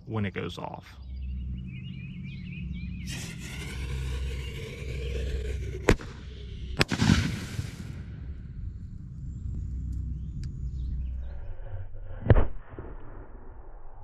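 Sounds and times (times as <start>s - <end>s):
firework fuse hiss: 6.8s - 8.0s
firework bang: 6.8s - 8.2s.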